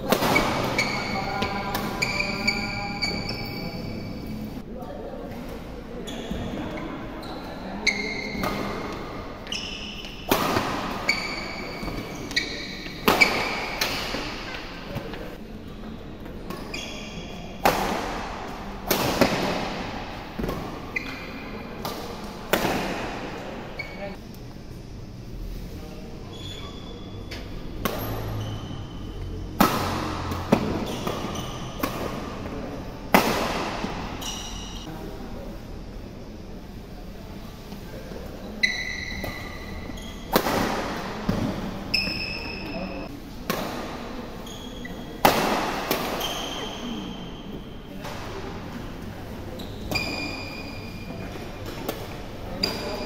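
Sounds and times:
racket hitting shuttlecock: 0.0 - 2.4, 8.2 - 15.0, 17.6 - 21.2, 21.8 - 23.6, 27.8 - 28.4, 29.6 - 32.5, 33.1 - 34.8, 40.3 - 42.2, 43.4 - 44.1, 45.2 - 46.8
shoes squeaking on court: 0.2 - 4.5, 6.0 - 15.4, 16.3 - 17.6, 20.4 - 22.3, 23.6 - 24.2, 26.2 - 32.6, 33.7 - 34.9, 38.4 - 43.1, 44.3 - 45.2, 46.1 - 48.4, 49.3 - 53.0.

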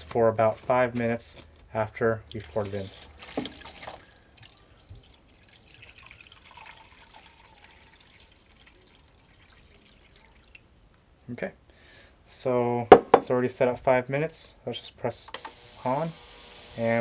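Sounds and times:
water trickling into a tank: 2.2 - 10.7.

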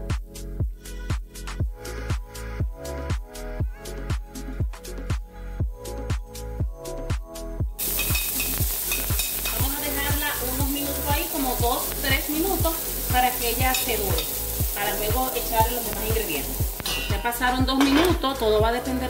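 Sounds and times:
onion sizzling in oil: 7.8 - 19.0.

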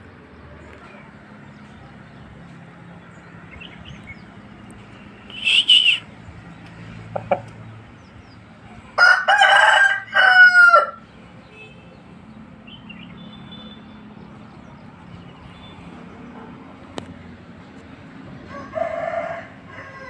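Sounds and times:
rooster crowing: 9.0 - 11.0, 18.5 - 20.0.

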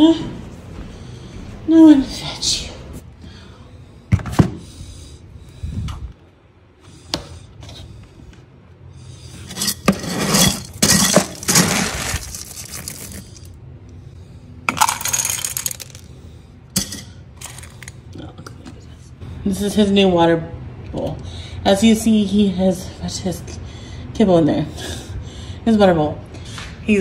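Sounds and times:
kibble poured into metal bowl: 14.7 - 16.1.

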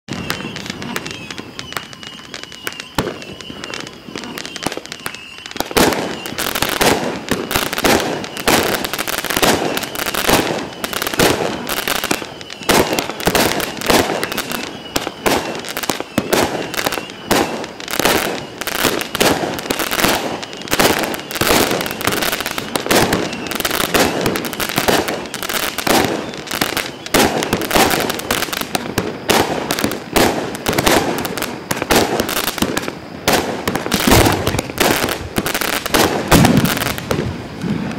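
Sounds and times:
firework launches and bursts: 0.1 - 37.9.

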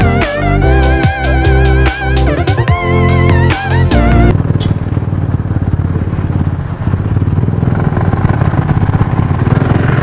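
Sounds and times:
guitar-led music with beat: 0.0 - 4.3.

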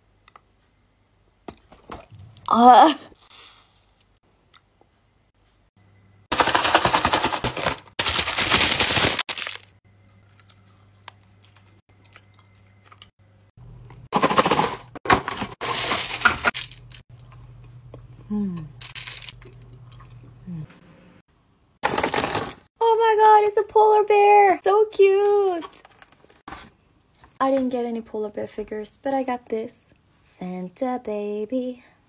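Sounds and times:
hard candy crunching: 6.3 - 13.1.

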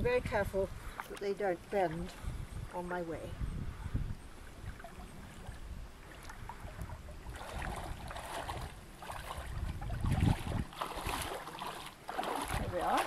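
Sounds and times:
water splashing around wading legs: 4.4 - 13.0.

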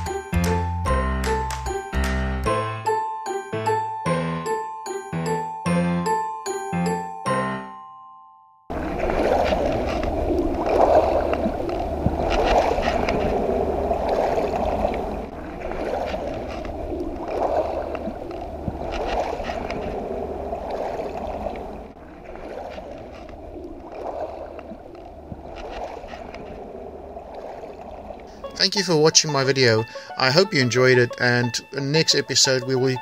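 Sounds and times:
waves lapping on pebbles: 8.7 - 28.3
wind rumble on microphone: 8.7 - 28.3.

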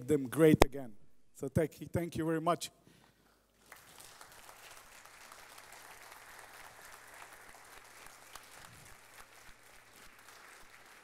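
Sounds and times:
faint audience applause: 3.6 - 11.0.

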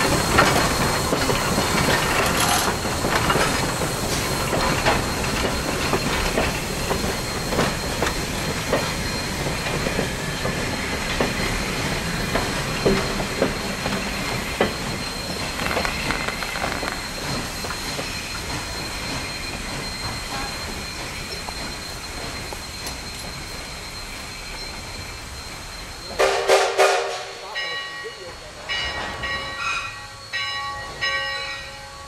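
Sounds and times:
wheels clunking over rail joints: 0.0 - 23.6
train rumbling past: 0.0 - 32.0.

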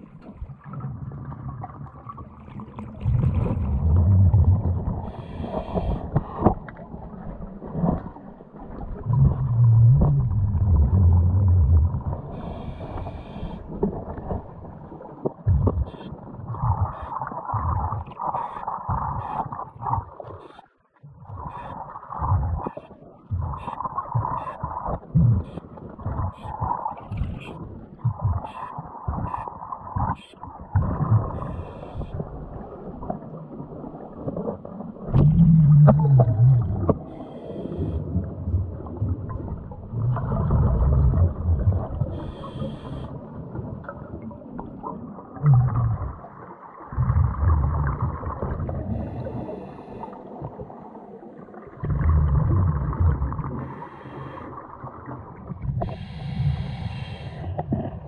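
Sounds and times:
bubbling exhaled air underwater: 0.0 - 58.0.

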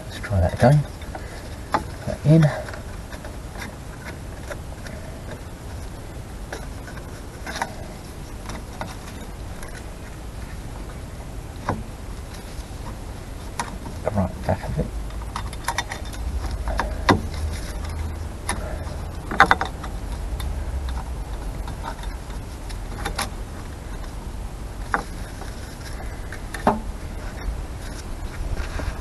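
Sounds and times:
steady low rumble: 0.0 - 29.0
light metallic clicks and knocks: 15.1 - 24.2.

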